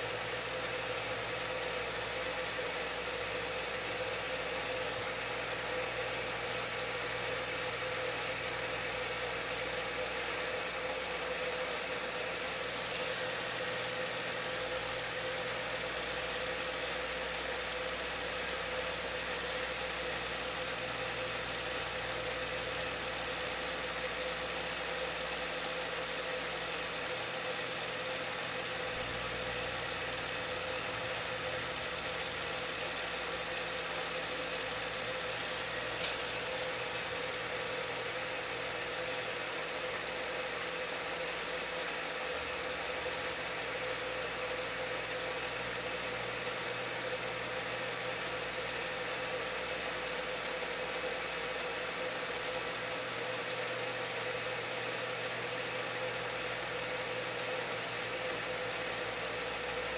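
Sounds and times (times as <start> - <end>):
mechanical running noise: 0.0 - 59.9.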